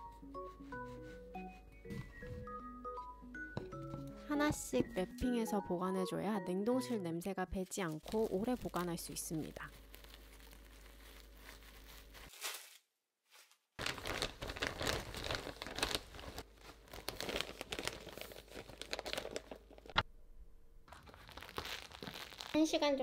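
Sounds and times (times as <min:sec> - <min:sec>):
plastic bag crinkling: 0:07.6 - 0:20.0, 0:20.9 - 0:23.0.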